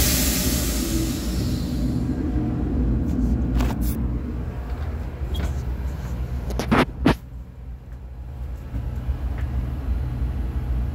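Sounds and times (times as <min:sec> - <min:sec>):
diesel engines low rumble: 0:00.0 - 0:10.9.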